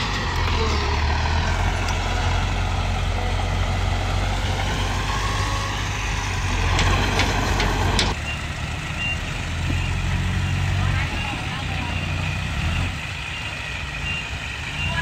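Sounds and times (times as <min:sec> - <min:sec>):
bulldozer diesel engine running: 0:00.0 - 0:15.0.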